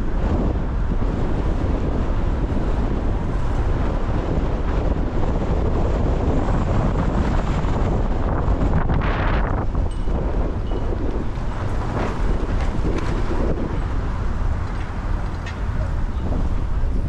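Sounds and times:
street traffic: 0.0s - 17.0s
wind buffeting microphone: 0.0s - 17.0s.

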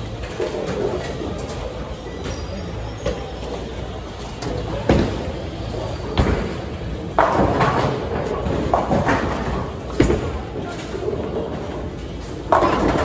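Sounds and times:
bowling balls rolling: 0.0s - 2.1s, 3.1s - 13.0s
balls crashing into pins: 6.1s - 13.0s.

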